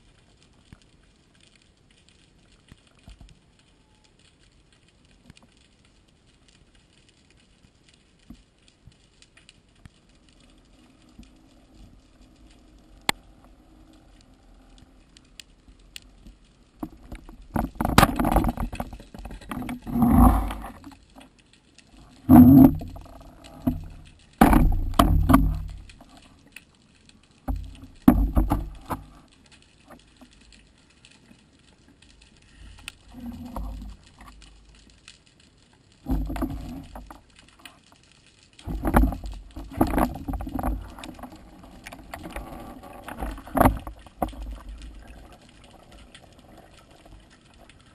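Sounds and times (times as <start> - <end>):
underwater rushing water: 7.5 - 47.9
underwater knocks: 16.8 - 20.9, 22.3 - 26.2, 27.5 - 29.2.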